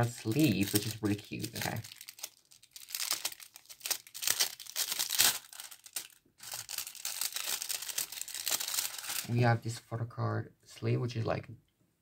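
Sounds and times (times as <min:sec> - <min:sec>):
plastic sleeve crinkling: 0:00.0 - 0:09.5.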